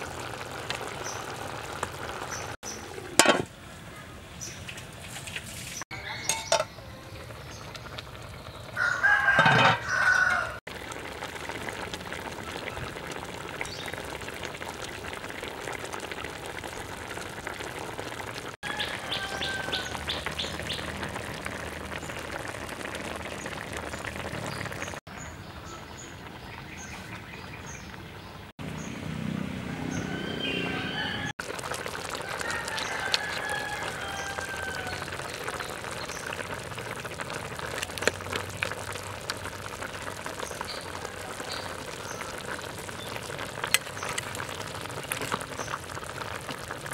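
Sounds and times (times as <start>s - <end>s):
pot of curry bubbling: 0.0s - 28.2s, 31.4s - 46.9s
small birds chirping: 5.6s - 8.9s, 12.3s - 14.2s, 18.6s - 22.4s, 32.5s - 36.6s, 40.2s - 46.0s.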